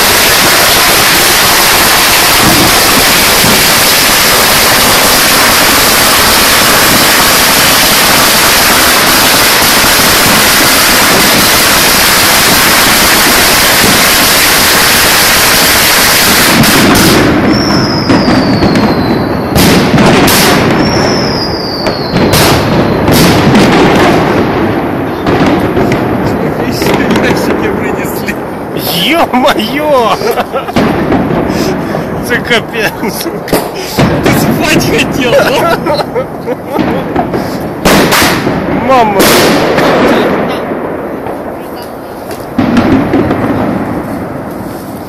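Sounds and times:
falling firework whistles: 0.0s - 23.8s
dense fireworks noise: 0.0s - 45.0s
fireworks bangs: 0.0s - 45.0s.

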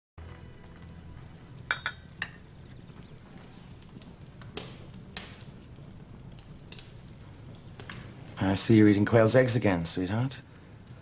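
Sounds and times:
metal utensil clinking tableware: 1.7s - 2.4s.

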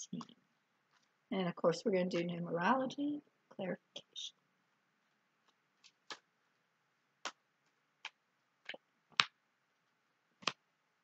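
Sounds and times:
cards snapping and tapping: 10.4s - 10.6s.

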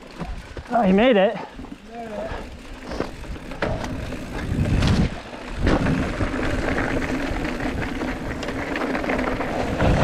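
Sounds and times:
bike chain and frame rattling: 0.0s - 10.0s
tyres and wind rumble: 0.0s - 10.0s.

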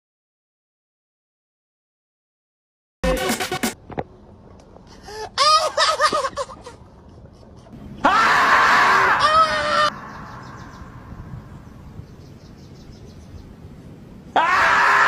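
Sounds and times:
loud scream: 8.0s - 10.6s, 14.3s - 15.0s.

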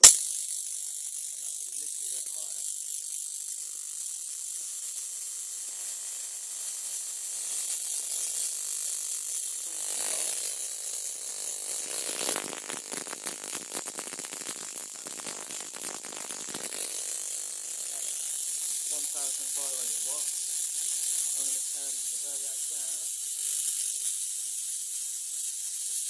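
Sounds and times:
high-voltage transformer hissing: 0.0s - 26.0s
electrical crackling: 7.8s - 23.0s.

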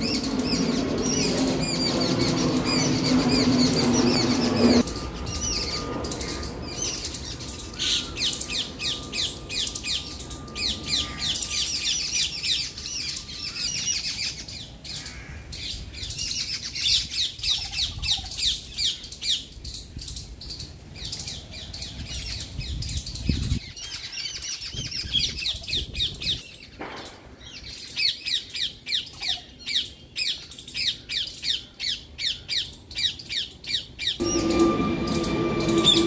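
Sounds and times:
birds squawking: 0.0s - 19.5s.

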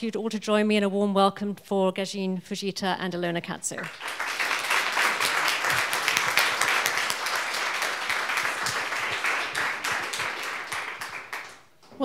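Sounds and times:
audience applauding: 3.8s - 11.7s.

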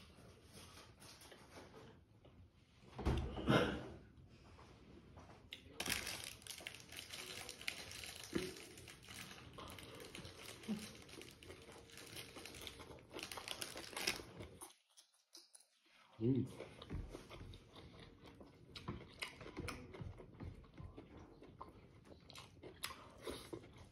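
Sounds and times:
crunchy chewing: 5.6s - 15.6s, 16.6s - 23.9s
lettuce leaves crinkling: 5.8s - 14.4s.

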